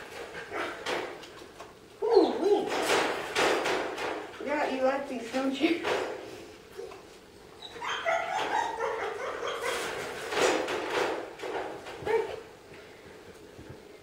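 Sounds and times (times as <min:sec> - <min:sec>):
dog barking and whining: 0:07.6 - 0:10.0, 0:12.0 - 0:12.5.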